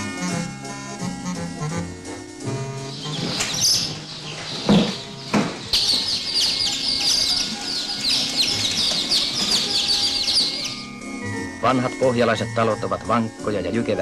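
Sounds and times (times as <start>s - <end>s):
chicks peeping: 2.8s - 11.0s
dull knocks: 3.0s - 10.8s.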